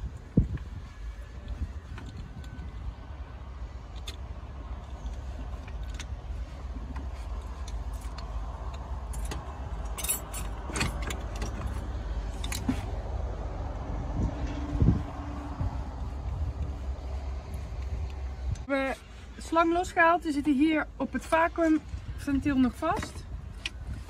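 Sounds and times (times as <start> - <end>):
steady low rumble: 0.0 - 24.0
metallic clinks and rattles: 7.3 - 12.8.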